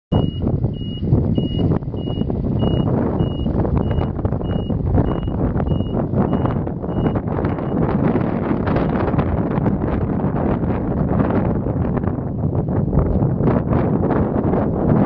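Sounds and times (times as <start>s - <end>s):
reverse warning beeper: 0.1s - 7.8s
low rumble: 0.1s - 15.0s.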